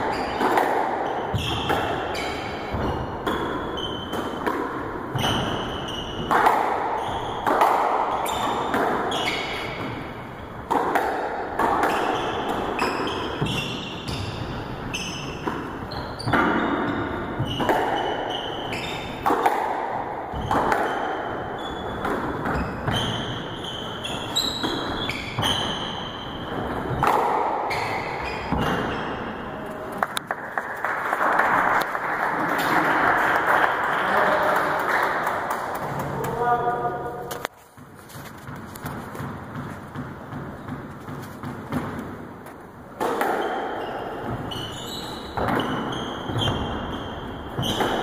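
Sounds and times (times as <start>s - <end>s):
shoes squeaking on wooden floor: 0.0s - 10.6s, 11.9s - 19.3s, 20.3s - 27.0s, 27.6s - 29.3s, 37.3s - 42.6s, 43.4s - 48.0s
squash ball smacking: 0.0s - 29.4s, 37.2s - 48.0s.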